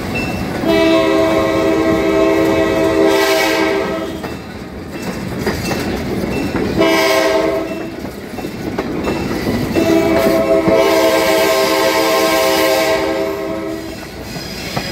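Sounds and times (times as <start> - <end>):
train wheels clattering on rails: 0.0 - 14.9
train horn blasts: 0.6 - 4.2, 6.8 - 7.9, 9.8 - 14.0.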